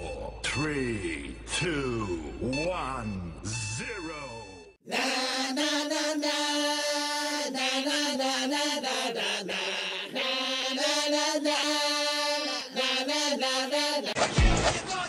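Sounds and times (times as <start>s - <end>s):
chant-like voices: 4.8s - 15.0s.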